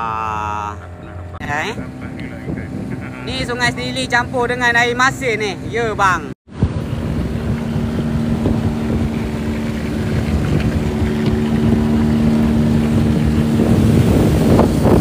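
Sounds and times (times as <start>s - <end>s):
outboard motor running: 0.0s - 15.0s
wind noise on microphone: 1.4s - 4.4s, 6.5s - 15.0s.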